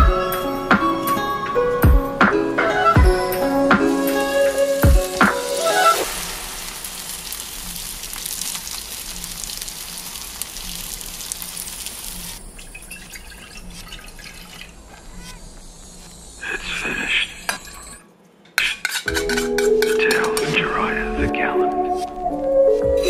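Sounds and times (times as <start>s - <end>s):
chicken sizzling in oil: 3.1s - 13.8s
stock poured into saucepan: 4.1s - 14.7s.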